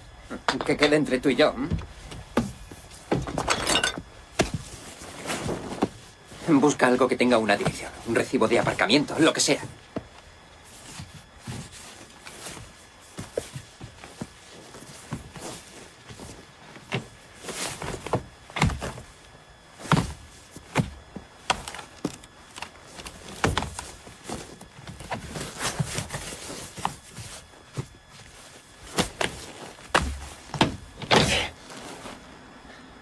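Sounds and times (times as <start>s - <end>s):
knocks and thuds in car interior: 1.6s - 4.7s, 17.9s - 19.1s, 29.0s - 31.6s
rustling: 4.0s - 32.4s.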